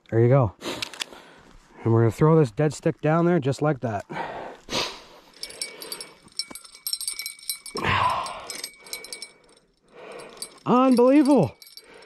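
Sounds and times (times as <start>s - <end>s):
fishing gear clicking and jingling: 5.2s - 12.0s.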